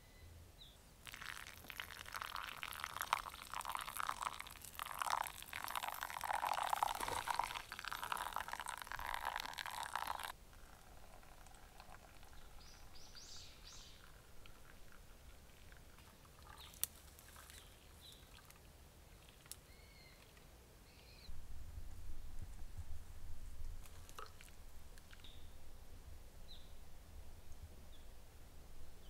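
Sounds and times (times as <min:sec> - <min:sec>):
water pouring and splashing: 0:01.0 - 0:13.0.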